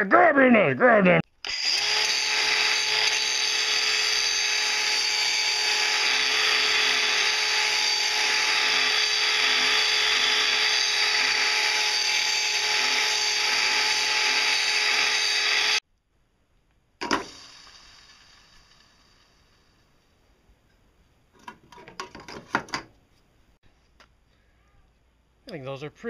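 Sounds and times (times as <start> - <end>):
angle grinder grinding steel: 1.4 - 15.8.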